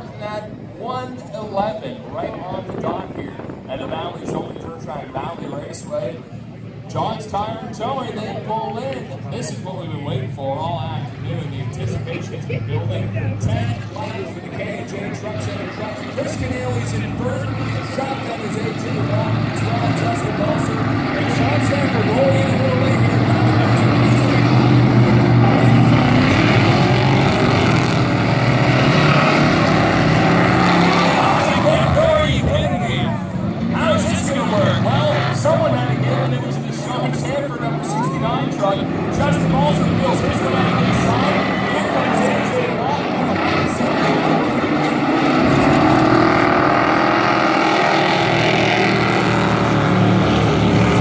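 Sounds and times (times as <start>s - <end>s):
race truck engines droning: 0.0s - 51.0s.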